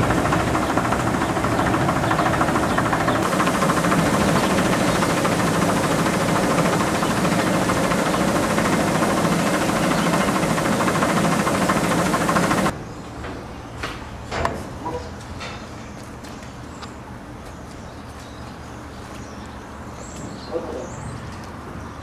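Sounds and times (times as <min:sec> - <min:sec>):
machine running with fine rattle: 0:00.0 - 0:13.5.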